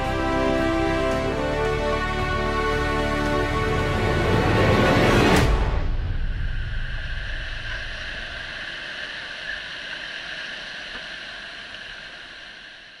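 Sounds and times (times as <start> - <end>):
water rushing around kayak: 6.6 - 13.0.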